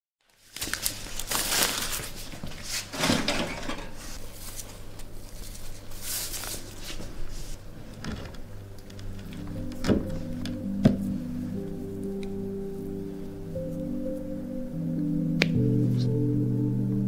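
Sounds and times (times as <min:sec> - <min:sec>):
low steady hum: 0:00.6 - 0:17.0
bowl and utensils moved on worktop: 0:02.9 - 0:04.2.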